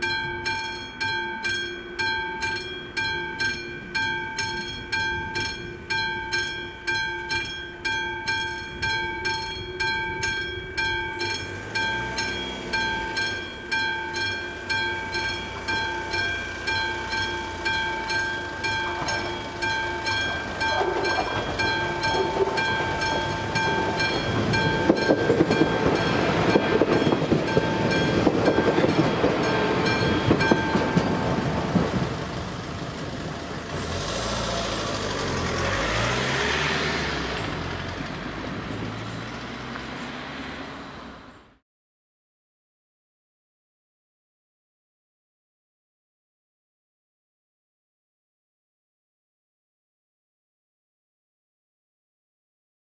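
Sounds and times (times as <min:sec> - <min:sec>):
level crossing bell ringing: 0:00.0 - 0:32.0
train rumbling over crossing: 0:00.0 - 0:41.4.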